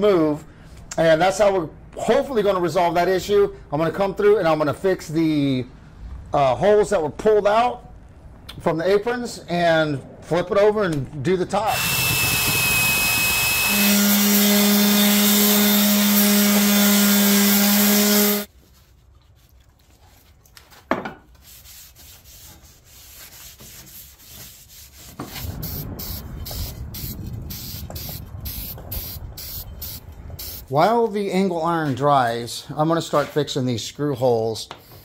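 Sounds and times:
drill boring through steel: 11.7 - 18.5
spray paint can hissing: 25.4 - 30.6.

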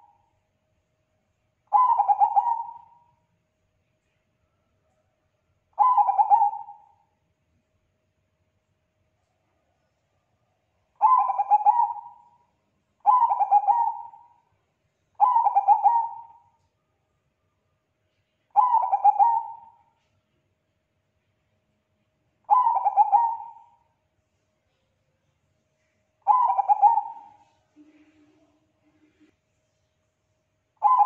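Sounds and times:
dove cooing: 1.7 - 3.0, 5.8 - 7.0, 11.0 - 12.3, 13.0 - 14.4, 15.2 - 16.5, 18.5 - 19.8, 22.5 - 23.8, 26.2 - 29.3, 30.8 - 31.0.

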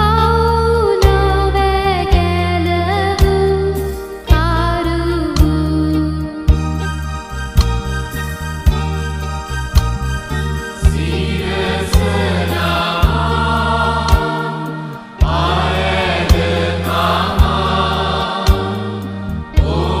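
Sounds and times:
sustained bass notes: 0.0 - 20.0
steady beat: 10.8 - 20.0
voices singing a hymn: 10.8 - 20.0.

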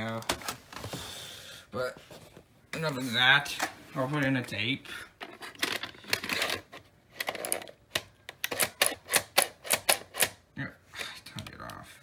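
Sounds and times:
tape mechanism clacking: 5.4 - 10.4.

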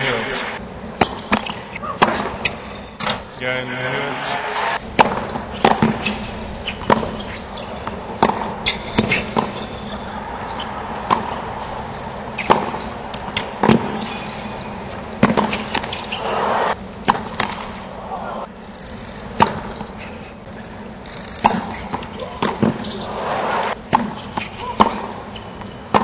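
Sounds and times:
crowd noise: 0.0 - 0.6, 3.3 - 5.0, 7.8 - 15.1, 15.8 - 16.8, 22.4 - 23.8
tennis racket hitting ball: 1.0 - 2.6, 4.8 - 17.8, 19.4 - 19.8, 21.4 - 25.2
tennis ball bouncing: 1.0 - 3.2, 4.8 - 16.4, 17.0 - 17.8, 19.3 - 20.1, 21.4 - 23.0, 23.7 - 26.0.

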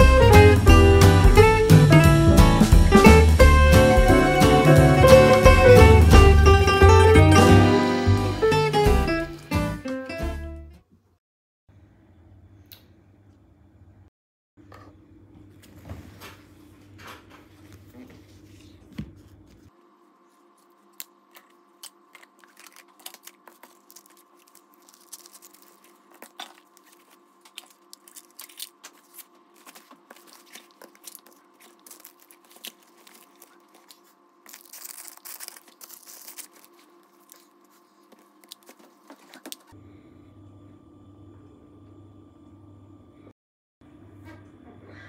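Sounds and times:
fabric bag rustling: 22.4 - 39.7.

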